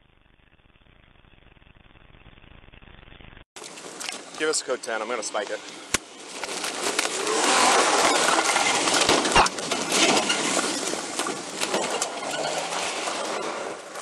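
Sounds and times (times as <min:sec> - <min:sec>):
gear rustling and clattering: 0:06.2 - 0:14.0.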